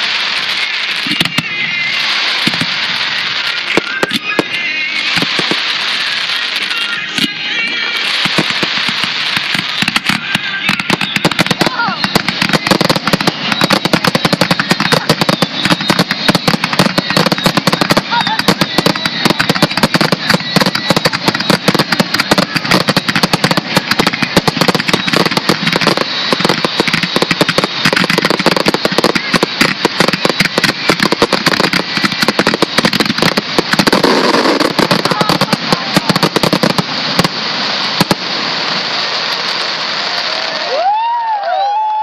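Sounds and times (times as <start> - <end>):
fireworks bangs and crackles: 0.0 - 42.0.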